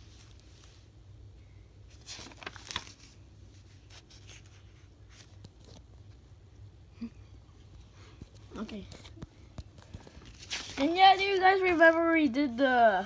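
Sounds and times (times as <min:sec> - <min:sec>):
low steady hum: 0:00.0 - 0:13.0
sketchbook pages turning: 0:01.9 - 0:06.2, 0:07.8 - 0:12.6.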